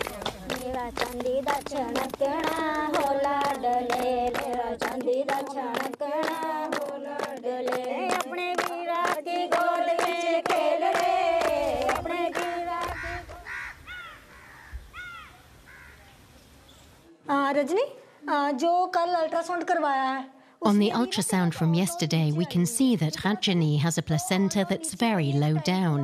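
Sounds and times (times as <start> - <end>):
rhythmic hand claps: 0.0 - 13.4
women singing together: 0.0 - 13.5, 18.4 - 26.0
bird calling: 12.8 - 17.0.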